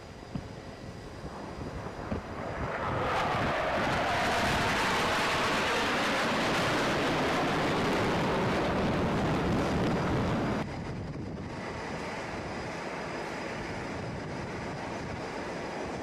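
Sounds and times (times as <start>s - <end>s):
dull steady rumble: 0.0s - 4.7s
wind buffeting microphone: 0.0s - 16.0s
fighter jets flying past: 0.1s - 16.0s.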